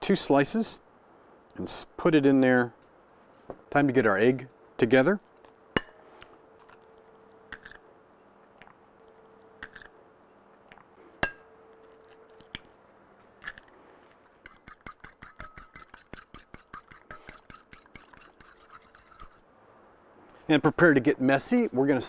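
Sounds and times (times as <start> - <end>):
eggs cracked against bowl: 7.5 - 7.8, 9.6 - 9.9, 12.1 - 12.8, 13.4 - 13.7, 14.4 - 19.4
fork beating eggs in bowl: 14.4 - 19.4.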